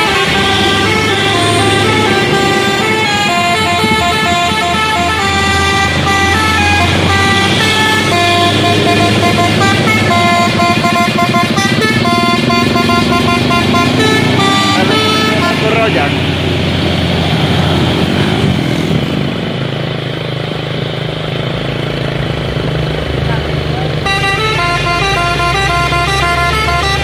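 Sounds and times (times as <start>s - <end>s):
musical truck horn playing tune: 0.0s - 16.4s, 23.8s - 27.0s
heavy trucks labouring uphill: 0.0s - 27.0s.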